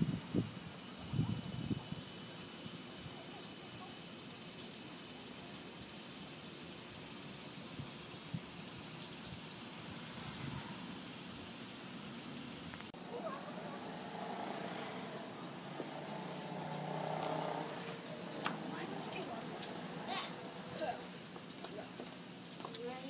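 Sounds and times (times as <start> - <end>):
insect chorus drone: 0.0 - 23.0.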